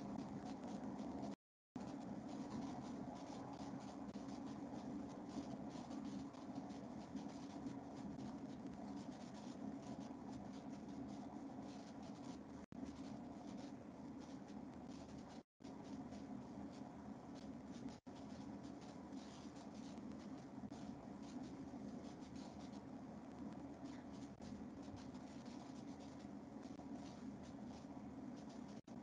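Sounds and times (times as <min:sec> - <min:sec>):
low hum with scratchy crackle: 0:00.0 - 0:29.0.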